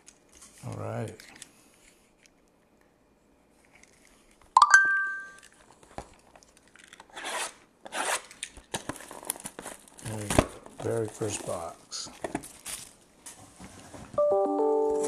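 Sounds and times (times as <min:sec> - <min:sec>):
plastic shrink wrap tearing: 0:06.4 - 0:11.7.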